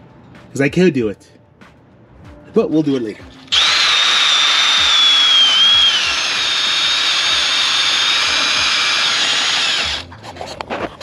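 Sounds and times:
drill spinning wire brush on metal: 3.5 - 10.1.

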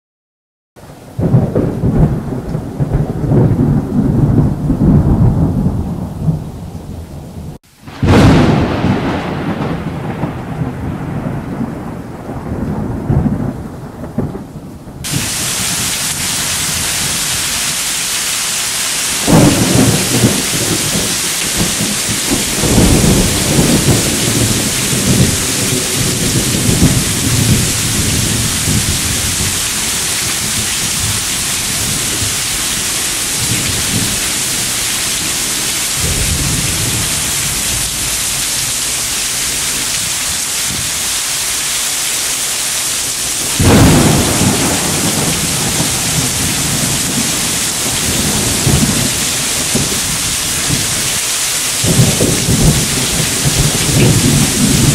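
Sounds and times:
rolling thunder: 1.1 - 17.5, 19.1 - 41.0, 43.2 - 54.9
heavy rain hissing: 7.6 - 11.4, 15.0 - 54.9.

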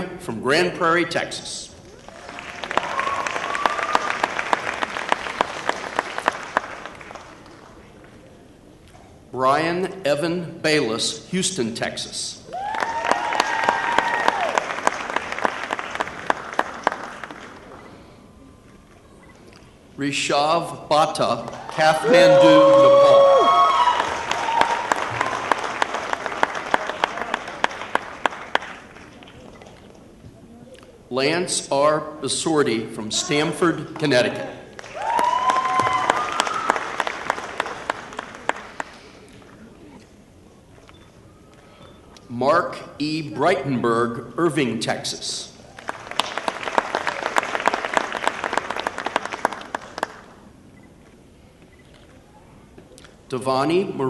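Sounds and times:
audience applauding: 2.0 - 7.8, 12.5 - 18.0, 21.5 - 29.9, 34.8 - 39.6, 45.7 - 50.4.

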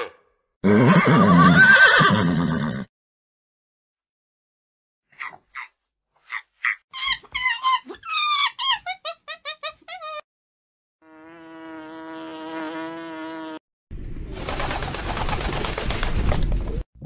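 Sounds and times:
monkey squeaky calls: 6.3 - 10.2.

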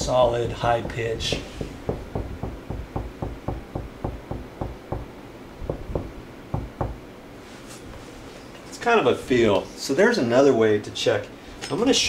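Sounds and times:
knuckles knocking on drywall: 0.5 - 5.1, 5.7 - 7.0.

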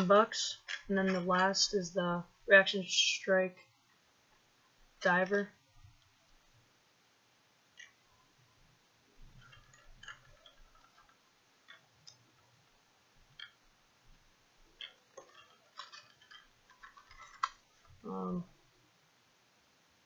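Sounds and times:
plastic package crinkling: 14.8 - 17.6.

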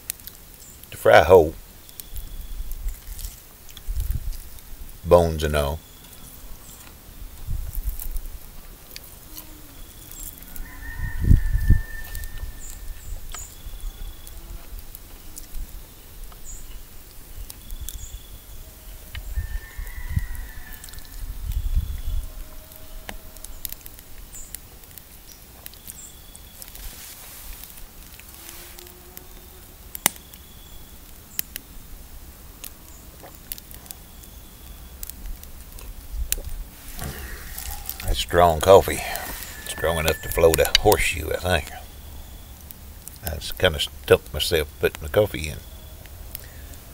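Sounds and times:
faint low outdoor rumble: 0.0 - 46.9
small eating clicks: 32.6 - 41.9
very high chirps: 37.2 - 42.5.

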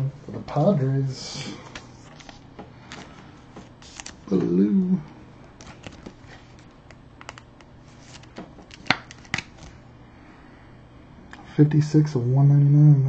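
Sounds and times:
card rustling in plastic sleeve: 1.7 - 4.6, 5.5 - 9.8.

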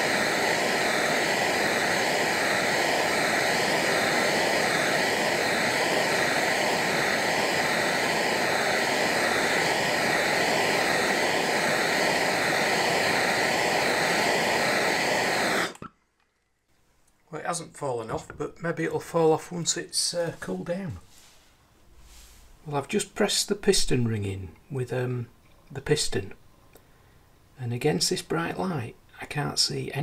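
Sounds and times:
gas torch flame hissing: 0.0 - 15.9, 20.0 - 24.4.

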